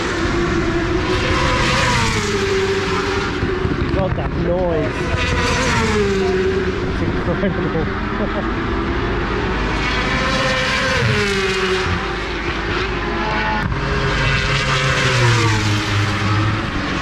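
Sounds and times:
racing motorbikes passing at high revs: 0:00.0 - 0:17.0.

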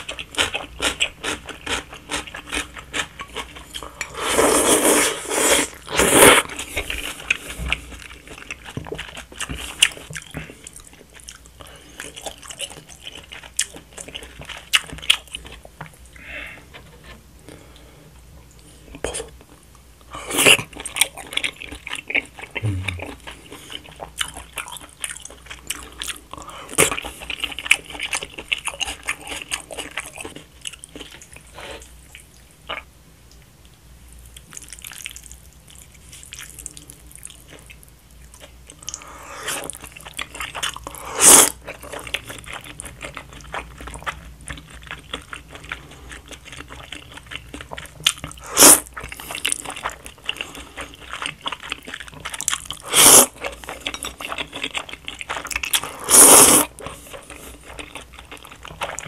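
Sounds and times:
slurping noodles: 0:04.0 - 0:06.7, 0:40.9 - 0:41.6, 0:48.4 - 0:48.9, 0:52.8 - 0:53.4, 0:55.8 - 0:56.8
wet chewing and lip-smacking: 0:06.4 - 0:16.0, 0:20.3 - 0:33.5, 0:34.2 - 0:59.0.

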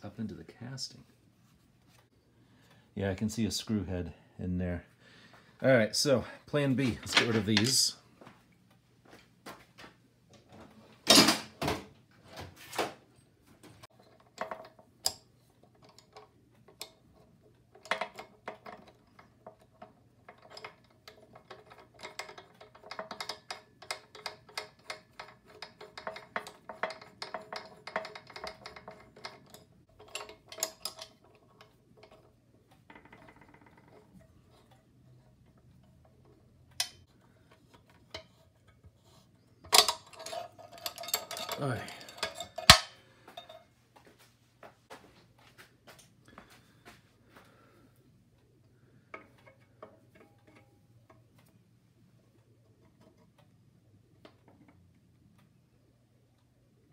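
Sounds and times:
hand tools clicking on metal: 0:17.7 - 0:32.3, 0:39.6 - 0:43.6.

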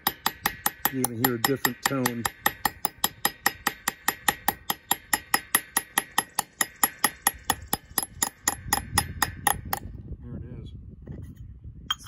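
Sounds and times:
hammer tapping on metal: 0:00.0 - 0:09.9.

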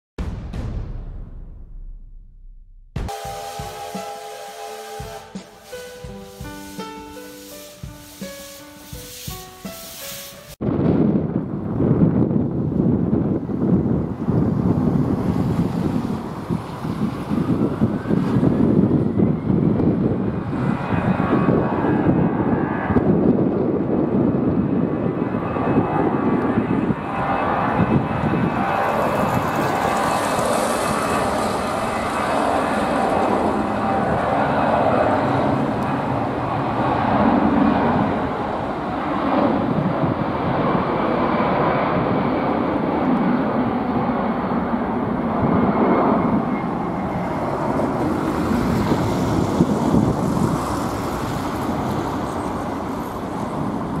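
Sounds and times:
jet engine rumble: 0:05.7 - 0:54.0.

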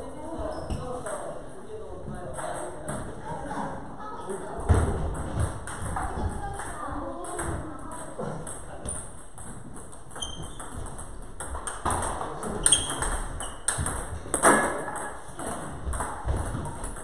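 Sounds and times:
table tennis ball hits: 0:04.7 - 0:17.0.

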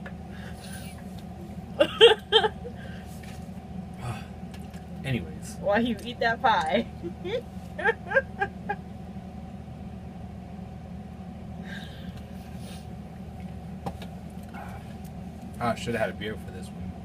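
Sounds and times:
low room hum: 0:00.0 - 0:17.0
squeals of stifled laughter: 0:06.9 - 0:08.8.

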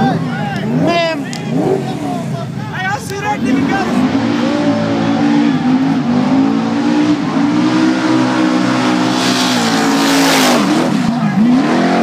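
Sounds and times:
car engine revving hard: 0:03.5 - 0:12.0.

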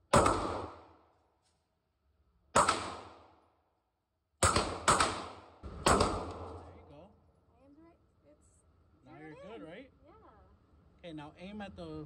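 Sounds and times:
pistol shots: 0:00.0 - 0:01.0, 0:02.6 - 0:03.4, 0:04.4 - 0:06.8.

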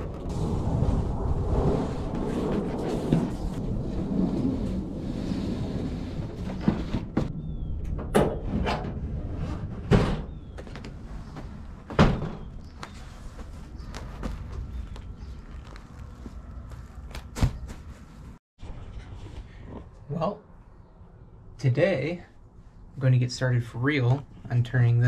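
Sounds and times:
wind rumbling on microphone: 0:00.0 - 0:18.4.

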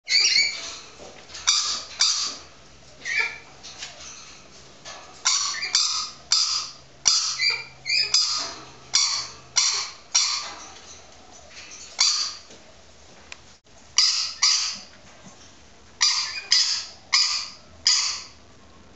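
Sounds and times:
parrot imitating dog yaps: 0:05.3 - 0:10.5, 0:14.0 - 0:14.9, 0:16.0 - 0:18.4.

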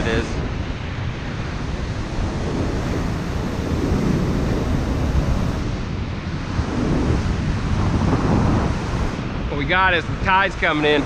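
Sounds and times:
ocean surf breaking: 0:00.0 - 0:11.0
wind buffeting microphone: 0:00.0 - 0:11.0.

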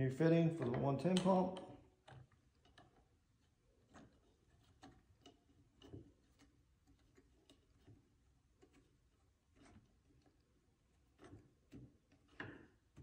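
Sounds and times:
plastic fitting clicking and tapping: 0:00.6 - 0:03.0.

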